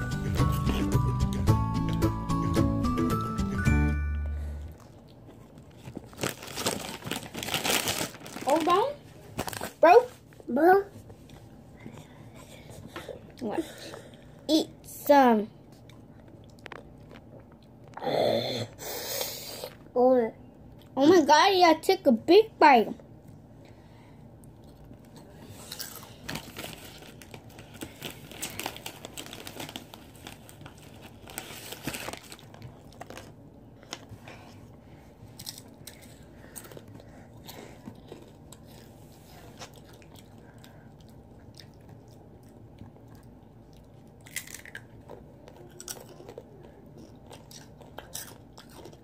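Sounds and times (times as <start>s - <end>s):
person chewing crunchy snack: 24.5s - 33.3s, 35.3s - 49.0s.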